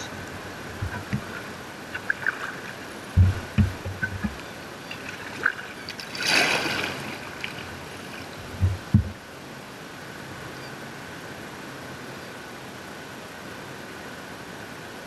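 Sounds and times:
water splashing around kayak: 0.0 - 10.0
low thumps: 0.6 - 1.4, 3.1 - 4.4, 8.4 - 9.2.

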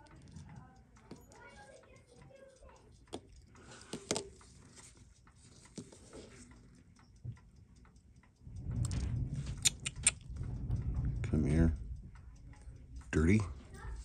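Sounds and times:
metal tweezers clicking: 6.4 - 14.0
low handling rumble: 8.3 - 14.0.

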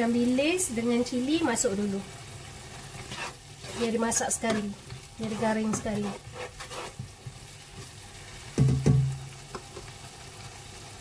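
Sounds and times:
paste sizzling in hot oil: 0.0 - 11.0
spatula stirring scrapes: 2.7 - 7.9.

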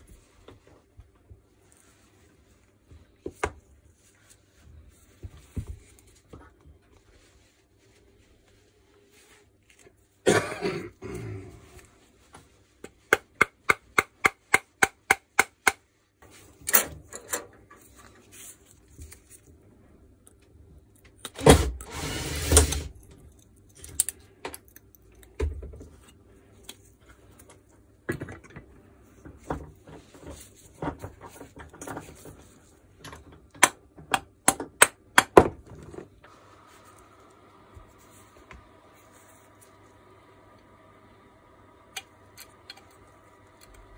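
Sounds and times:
sharp clicks of metal parts: 23.0 - 25.4.

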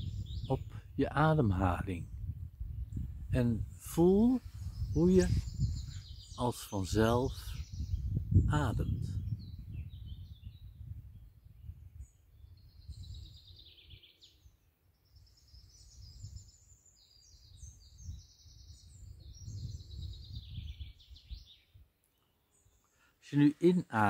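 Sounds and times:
low gusty rumble: 0.0 - 13.6, 17.4 - 21.6
songbird trilling: 4.4 - 10.8, 12.4 - 22.9.

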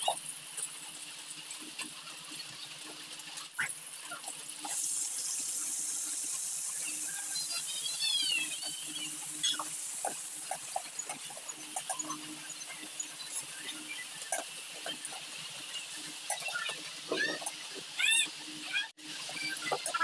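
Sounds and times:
food sizzling in oil: 0.0 - 20.0
high squeaky chirps: 6.6 - 20.0.

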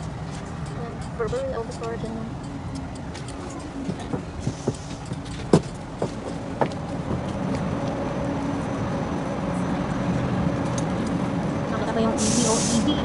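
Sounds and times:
footsteps on pavement: 0.0 - 8.7
street traffic: 0.0 - 13.0
tram hum: 0.0 - 13.0.

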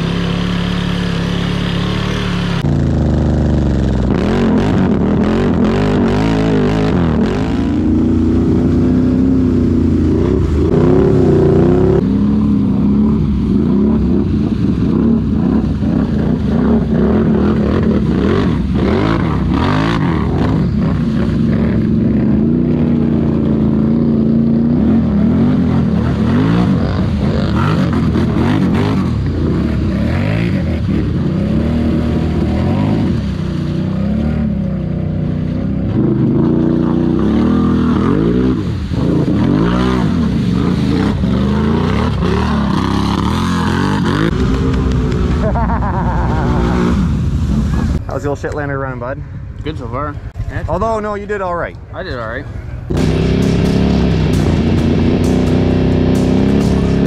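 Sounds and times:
quad engines revving: 0.0 - 48.0, 52.8 - 57.0.

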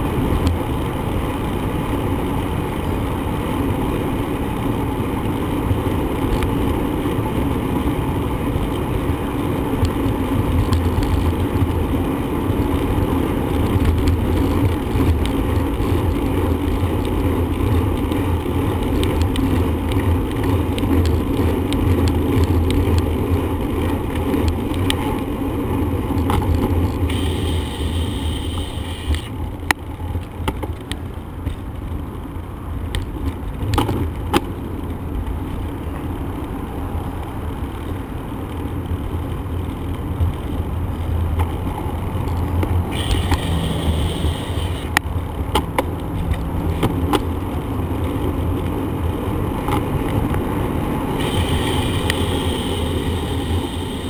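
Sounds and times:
bicycle road noise: 0.0 - 54.0
wind rumble on microphone: 0.0 - 54.0.

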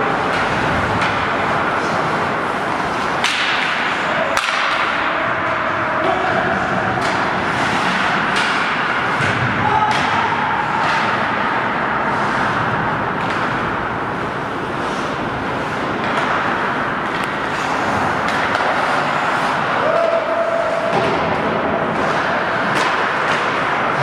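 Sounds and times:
skates scraping on ice: 0.0 - 5.1, 6.5 - 9.8, 10.6 - 20.1
hockey sticks and puck knocking: 0.0 - 24.0.

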